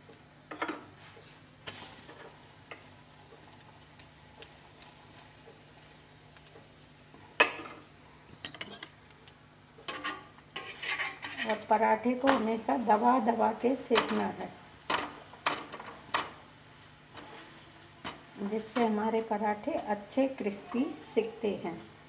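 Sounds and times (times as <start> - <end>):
faint sizzle: 0.0 - 22.0
metal spoon scraping: 9.9 - 11.7.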